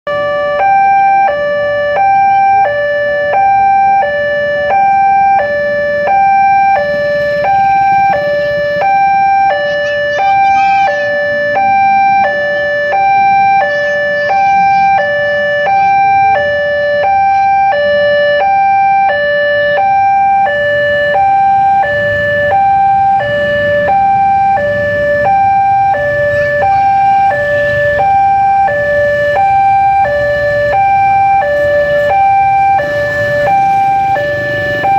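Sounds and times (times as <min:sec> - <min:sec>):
two-tone crossing alarm: 0:00.1 - 0:34.9
motorcycle engines running: 0:19.7 - 0:34.9.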